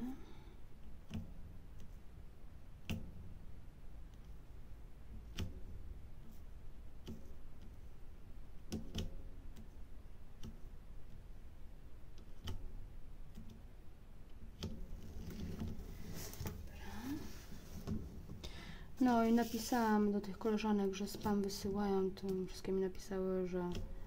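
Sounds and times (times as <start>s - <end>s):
small plastic clicks and taps: 0.8s - 2.0s, 2.8s - 3.3s, 5.1s - 6.4s, 7.0s - 7.9s, 8.5s - 11.2s, 12.1s - 13.6s, 14.2s - 15.8s, 20.6s - 24.0s.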